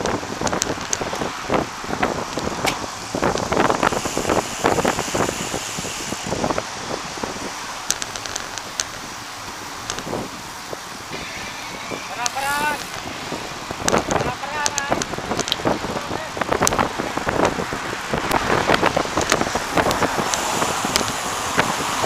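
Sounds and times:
bicycle knocks and rattles: 0.0 - 4.5
bicycle tyre hum: 0.0 - 22.0
wind rushing over microphone: 0.0 - 22.0.

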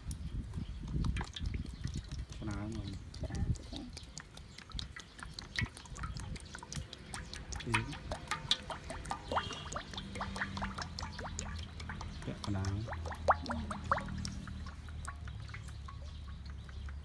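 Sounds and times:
oil splashing and dripping: 0.0 - 17.0
oil pouring into metal wok: 5.4 - 16.0.

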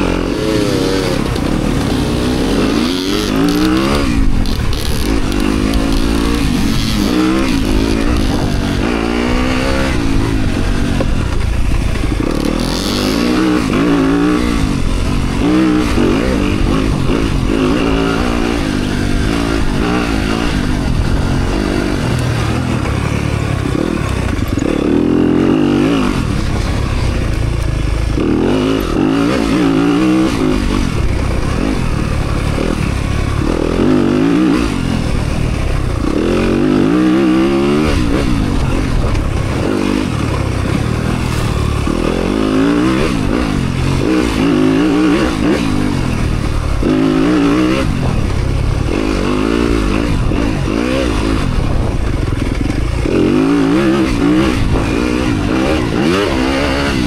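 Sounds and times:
dirt bike engine revving: 0.0 - 57.0.

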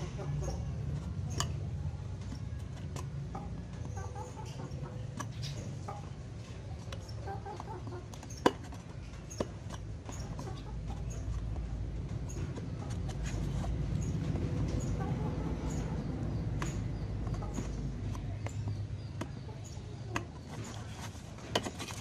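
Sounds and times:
chickens clucking: 0.0 - 22.0
low steady rumble: 9.0 - 20.1.

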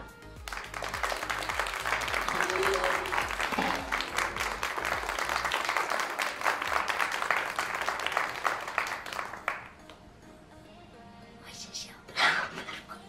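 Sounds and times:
applause: 0.4 - 9.8.

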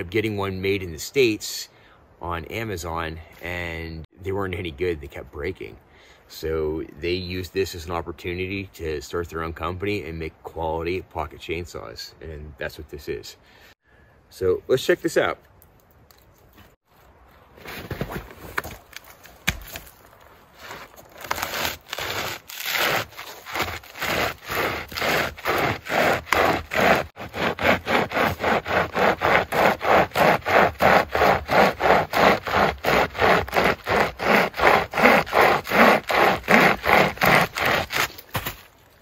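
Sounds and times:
pocket chainsaw scraping through log: 20.5 - 38.4.

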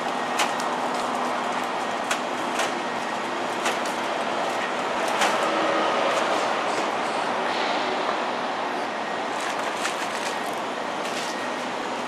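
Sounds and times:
plastic wrappers crinkling: 0.0 - 5.6
vending machine hum: 0.0 - 12.0.

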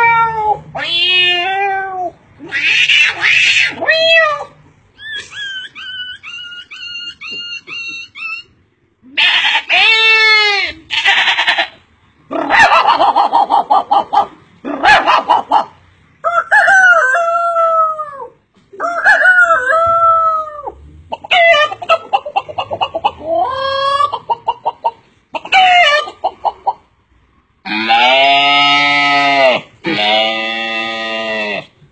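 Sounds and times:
man imitating hen clucking: 12.4 - 26.7
man imitating rooster crows: 16.2 - 21.5.

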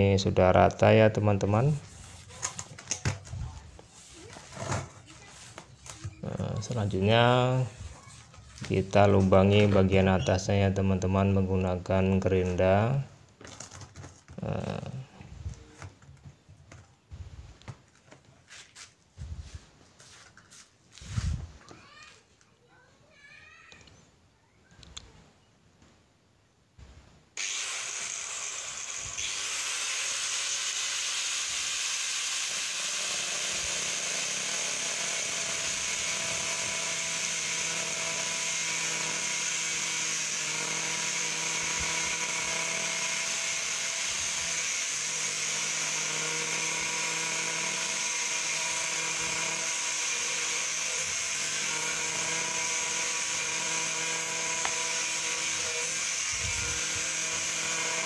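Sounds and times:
angle grinder cutting plastic: 1.4 - 10.2, 27.4 - 58.0.

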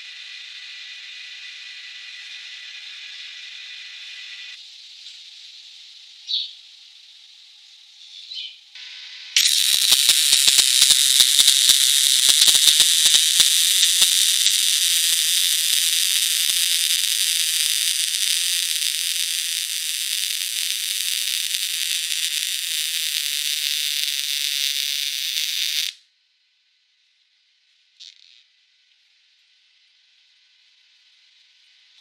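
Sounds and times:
welding arc frying hiss: 0.0 - 4.6, 9.4 - 26.0
spatter pops: 9.4 - 26.0.

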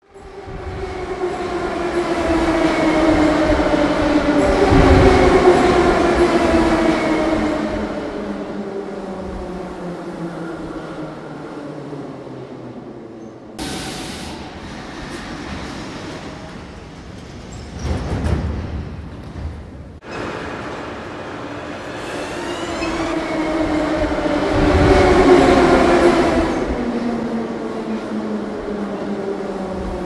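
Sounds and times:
air hiss of doors opening: 13.6 - 14.7
subway train motor whine: 20.1 - 30.0.

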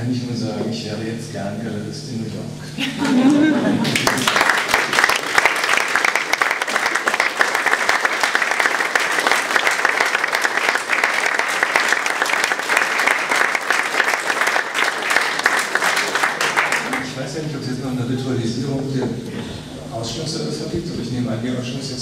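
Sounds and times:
audience applauding: 3.0 - 17.2.

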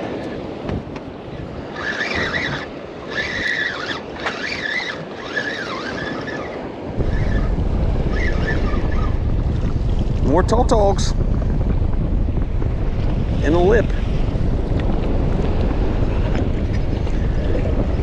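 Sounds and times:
wind buffeting microphone: 0.0 - 18.0
heavy rumble: 6.9 - 18.0
high warbling tones: 7.0 - 10.0.

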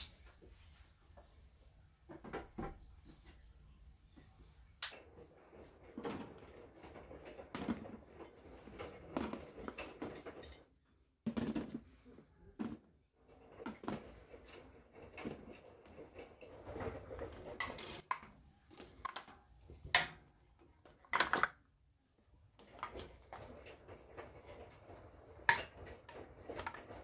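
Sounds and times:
plastic containers clattering on wire shelf: 4.9 - 21.7, 22.6 - 27.0.

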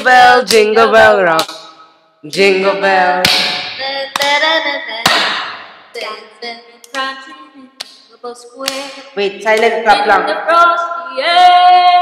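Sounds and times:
teenagers singing: 0.0 - 1.7, 2.4 - 12.0
sharp hand claps: 1.3 - 1.8, 3.2 - 4.4, 5.0 - 5.7, 7.8 - 9.8.

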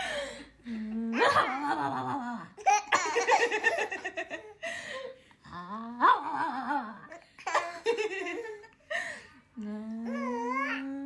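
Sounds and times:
baby chuckling and cooing: 7.3 - 8.8.

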